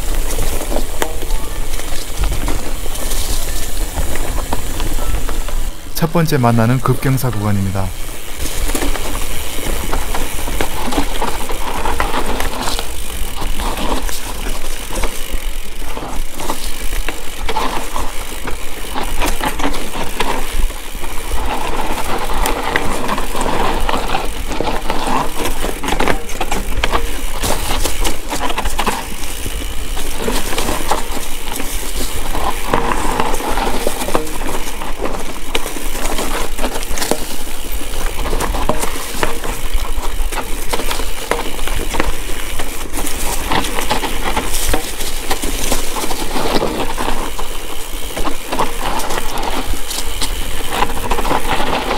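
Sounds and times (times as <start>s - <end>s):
bike rattling and knocking: 0.0s - 6.0s, 6.7s - 51.9s
tyres crunching over dirt: 0.0s - 51.9s.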